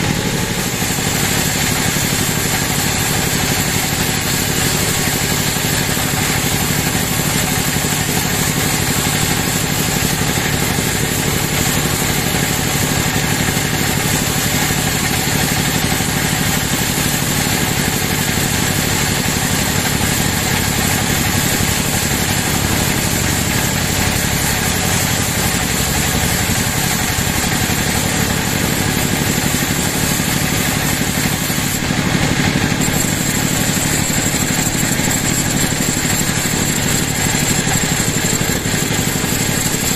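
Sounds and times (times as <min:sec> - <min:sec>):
band saw mechanical drone: 0:00.0 - 0:39.9
saw blade high whine: 0:00.0 - 0:39.9.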